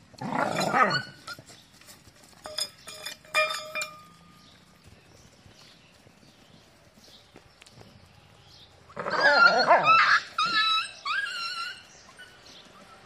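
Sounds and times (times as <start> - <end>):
metal bowl clinking: 2.4 - 4.5
dog crying: 9.0 - 12.3.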